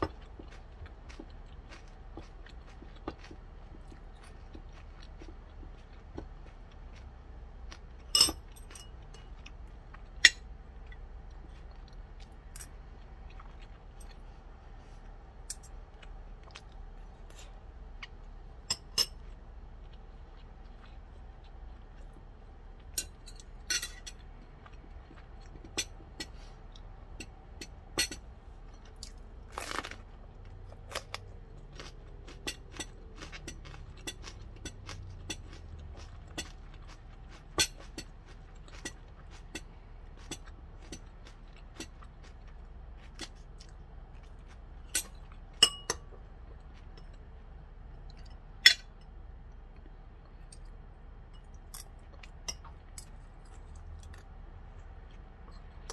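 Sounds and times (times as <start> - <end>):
crunching bites and chewing: 0.0 - 14.3, 24.2 - 45.6
spoon clicking on ceramic dishes: 45.6 - 46.0.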